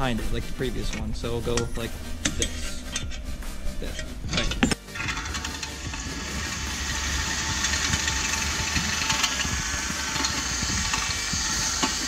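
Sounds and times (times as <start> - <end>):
cordless drill drilling metal: 4.9 - 12.0.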